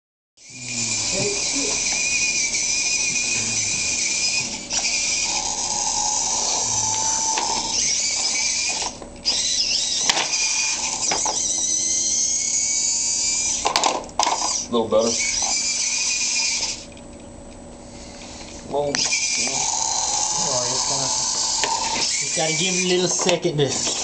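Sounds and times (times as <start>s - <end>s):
steady high tone: 0.4s - 8.9s
robot motors and servos whining: 0.4s - 17.0s, 17.9s - 24.0s.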